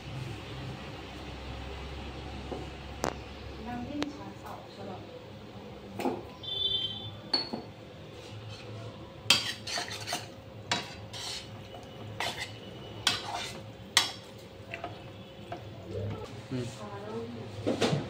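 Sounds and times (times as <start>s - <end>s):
metal spatula scraping frying pan: 9.3s - 14.1s.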